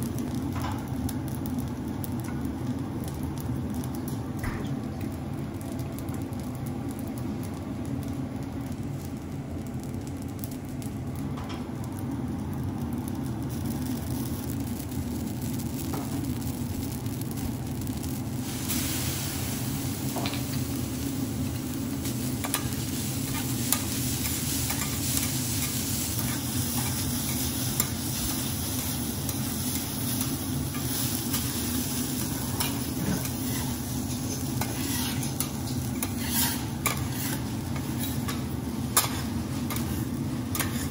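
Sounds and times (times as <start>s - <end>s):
rice sizzling on griddle: 0.0s - 40.9s
metal spatula scraping plate: 34.6s - 35.4s, 36.0s - 38.2s.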